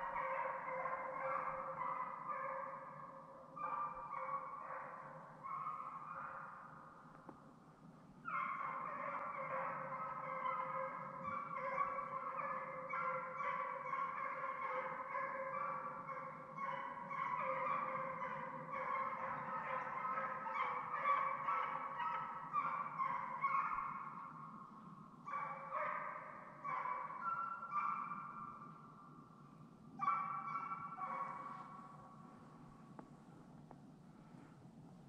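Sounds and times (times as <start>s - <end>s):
hounds baying: 0.0s - 6.5s, 8.3s - 24.3s, 25.3s - 28.4s.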